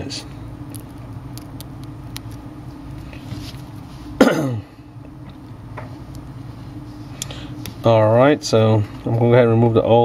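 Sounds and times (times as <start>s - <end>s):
steady low hum: 0.0s - 10.0s
man clearing throat: 4.2s - 4.8s.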